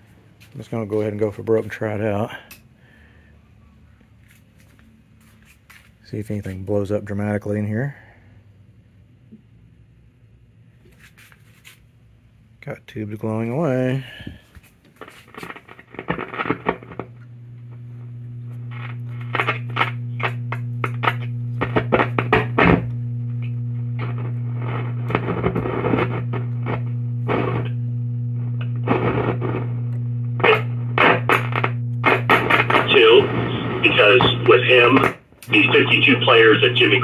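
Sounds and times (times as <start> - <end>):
radio low hum: 0.5 - 2.6, 15.4 - 37.0
radio static and broadcast snatches: 15.0 - 17.1, 18.5 - 23.0, 23.7 - 37.0.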